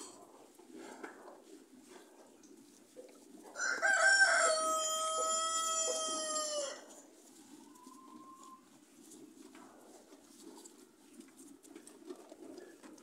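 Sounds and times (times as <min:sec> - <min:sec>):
rooster crowing: 0:03.6 - 0:06.8.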